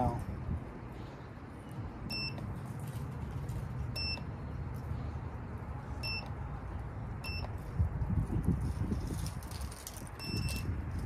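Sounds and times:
battery tester beeping: 2.1 - 2.5, 4.0 - 4.3, 6.0 - 6.4, 7.2 - 7.6, 10.2 - 10.7.

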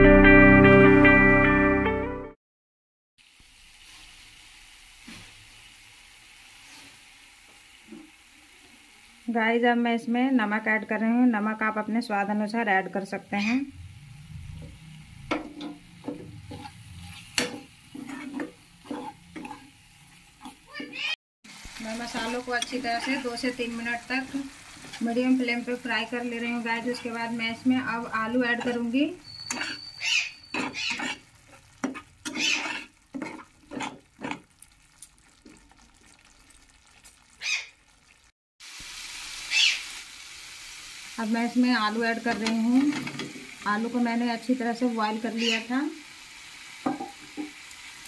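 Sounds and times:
faint frying sizzle: 3.2 - 48.0
spatula scraping a pan: 14.6 - 21.2, 22.1 - 23.6, 28.0 - 34.5.

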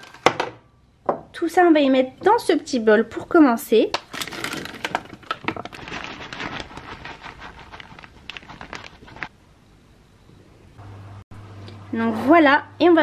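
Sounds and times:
plastic packets crinkling: 4.0 - 9.3.

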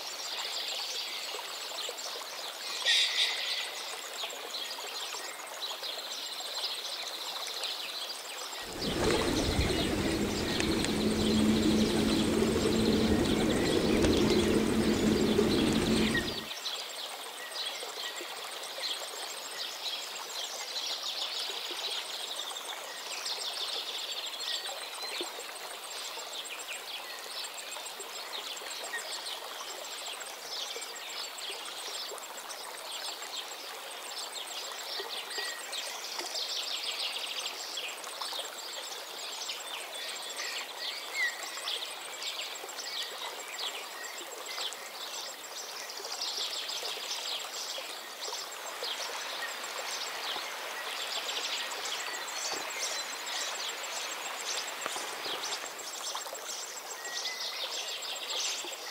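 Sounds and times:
running water rushing: 8.6 - 16.5.

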